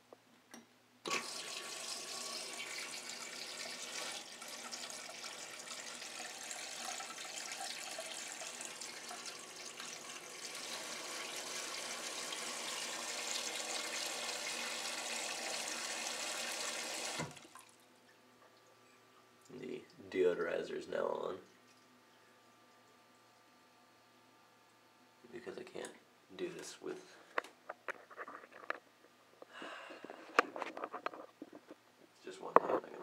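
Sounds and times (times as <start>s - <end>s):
water rushing into toilet bowl: 1.1s - 17.8s.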